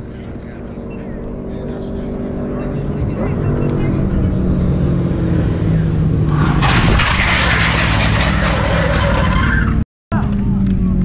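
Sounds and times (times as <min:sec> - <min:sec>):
motorcycle engines idling: 0:00.0 - 0:05.0, 0:10.2 - 0:11.0
motorcycle skidding on gravel: 0:06.3 - 0:09.8.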